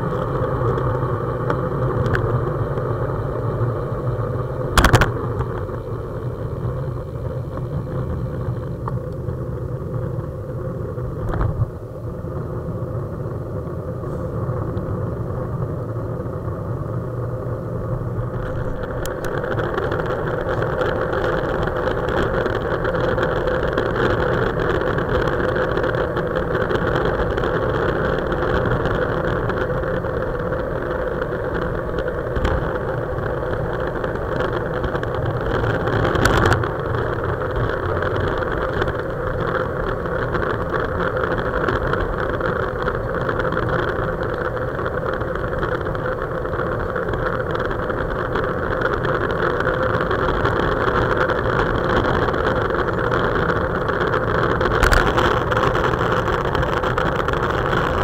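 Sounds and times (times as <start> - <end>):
bicycle tyre noise: 0.0 - 58.0
wind rushing over camera: 0.0 - 58.0.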